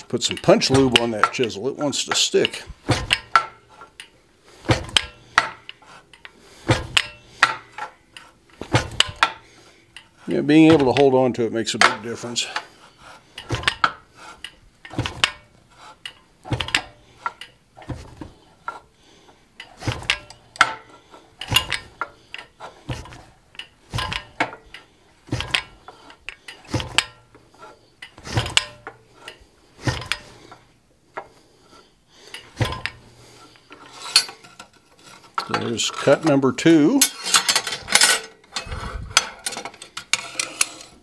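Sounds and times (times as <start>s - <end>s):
fly press metallic clank: 2.1s - 4.0s, 4.6s - 5.7s, 6.6s - 7.9s, 8.6s - 9.4s, 13.4s - 18.8s, 19.6s - 27.4s, 32.4s - 33.1s.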